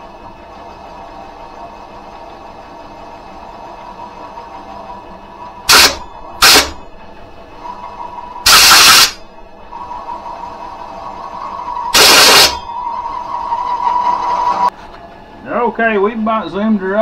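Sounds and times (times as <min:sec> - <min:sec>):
lathe whine: 0:00.0 - 0:17.0
compressed air blasts: 0:05.7 - 0:06.8, 0:08.5 - 0:09.2, 0:11.9 - 0:12.6.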